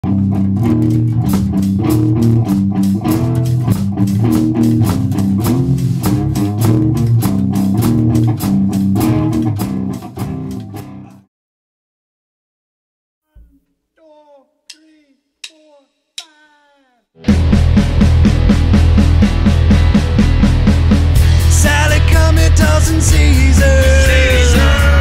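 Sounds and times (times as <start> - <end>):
rock band playing: 0.0 - 11.1, 17.2 - 25.0
drum hits: 1.2 - 9.2.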